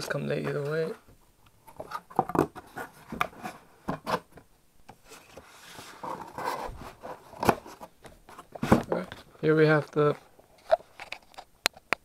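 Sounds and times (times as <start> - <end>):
cardboard rubbing and sliding: 5.0 - 9.2.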